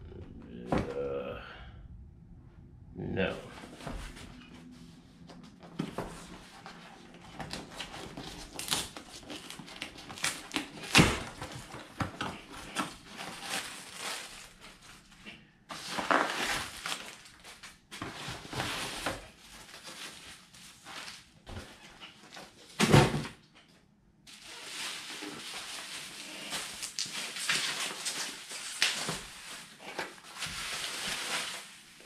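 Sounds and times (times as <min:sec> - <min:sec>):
bubble wrap rustling: 0:05.7 - 0:22.7, 0:24.3 - 0:32.0
cardboard tearing and rustling: 0:05.8 - 0:15.1, 0:15.7 - 0:23.1, 0:24.3 - 0:32.0.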